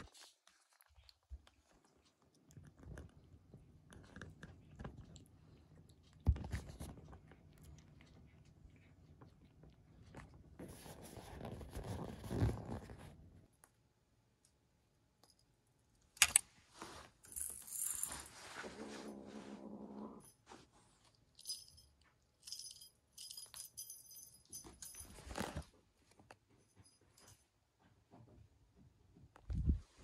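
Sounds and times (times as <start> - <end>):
light high-pitched jingling: 20.1 - 25.7, 26.5 - 27.8.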